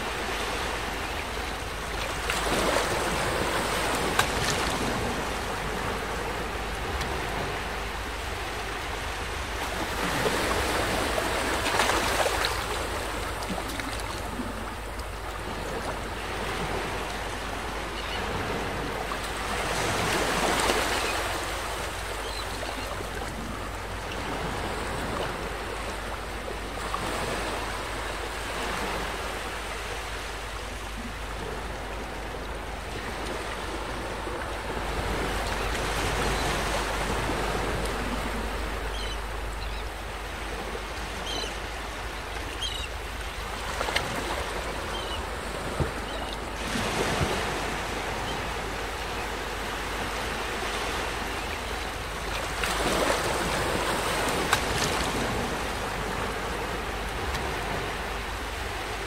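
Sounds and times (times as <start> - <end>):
small waves washing onto shore: 0.0 - 59.0.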